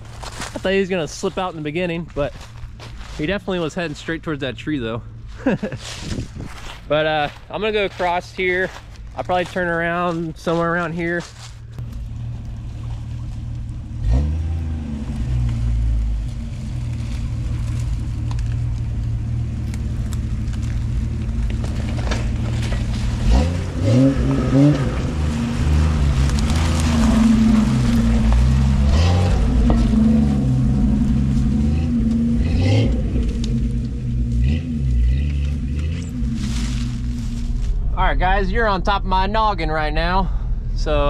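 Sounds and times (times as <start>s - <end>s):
car engine revving: 11.8s - 41.0s
water splashing around tyres: 11.9s - 32.3s.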